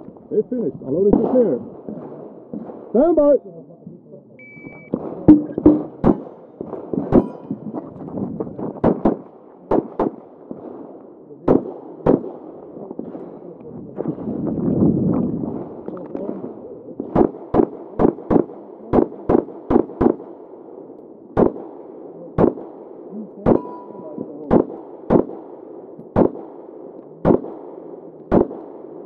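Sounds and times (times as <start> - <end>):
pistol shots: 1.1 - 3.2, 4.9 - 7.8, 8.8 - 14.2, 17.0 - 29.0.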